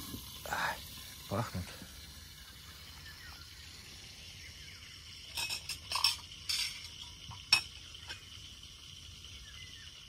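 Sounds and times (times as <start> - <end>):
food sizzling in a frying pan: 0.0 - 10.0
metal utensil scraping a pan: 5.3 - 8.2.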